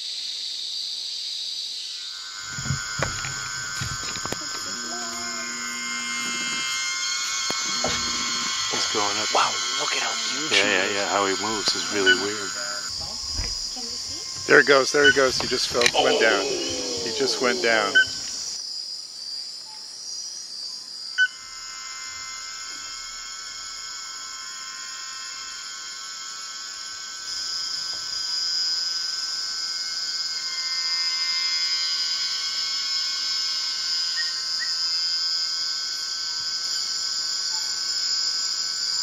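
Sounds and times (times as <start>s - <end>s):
insects shrilling: 1.2s - 19.4s, 20.0s - 39.0s.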